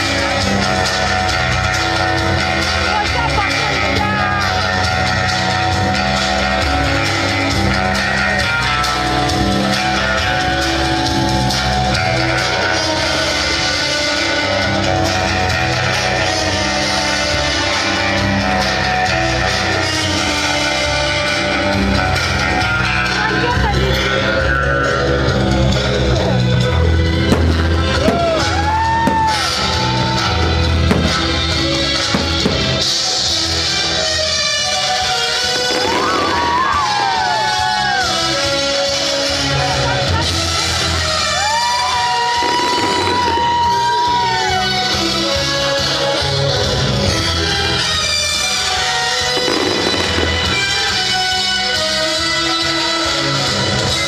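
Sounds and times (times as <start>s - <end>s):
rock music with guitar and drums: 0.0s - 54.0s
fireworks bangs: 27.3s - 29.8s, 30.8s - 33.3s, 35.5s - 37.6s, 42.1s - 43.8s, 49.3s - 51.1s.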